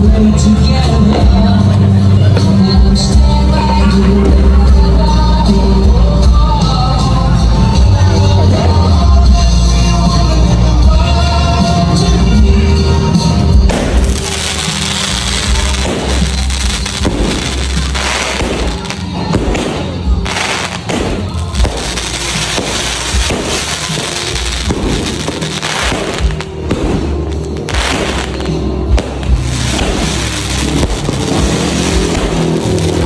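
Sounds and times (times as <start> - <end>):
music with heavy bass: 0.0 - 33.0
firecracker bangs and crackling: 11.5 - 33.0.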